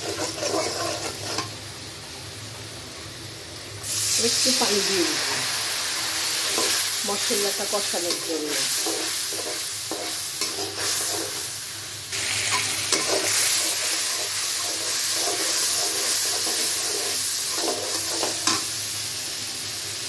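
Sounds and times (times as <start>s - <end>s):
metal spatula scraping a pot: 0.0s - 1.5s, 12.5s - 18.6s
spices sizzling in oil: 0.0s - 20.0s.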